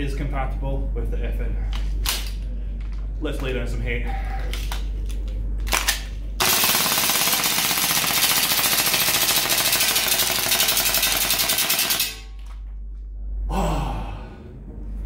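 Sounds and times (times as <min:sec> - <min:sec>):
airsoft rifle full-auto burst: 0:06.4 - 0:12.2.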